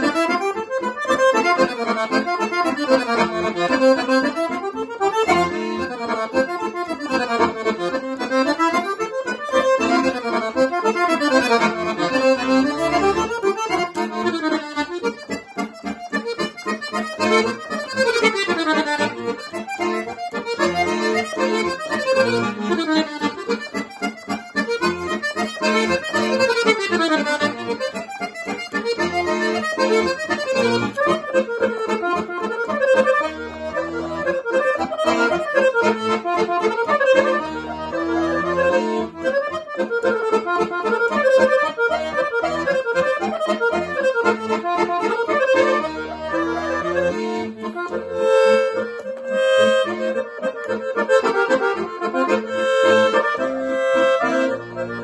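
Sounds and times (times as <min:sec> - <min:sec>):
accordion dance tune: 0:00.0 - 0:55.0.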